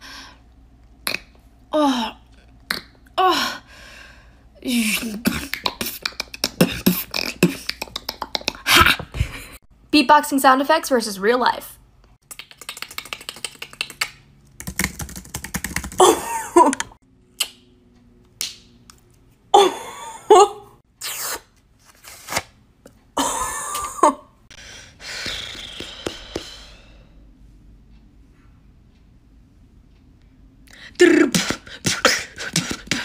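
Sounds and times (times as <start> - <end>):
person beatboxing: 5.0 - 8.7, 31.0 - 33.0
computer keyboard typing: 12.4 - 16.1.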